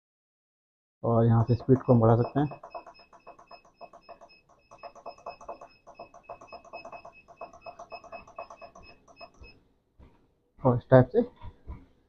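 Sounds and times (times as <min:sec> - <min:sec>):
treadmill console beeping: 0:01.3 - 0:09.7.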